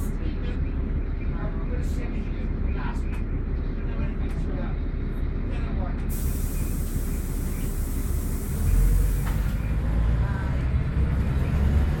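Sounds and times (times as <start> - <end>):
bus engine and road rumble: 0.0 - 12.0
steady hiss: 6.1 - 9.5.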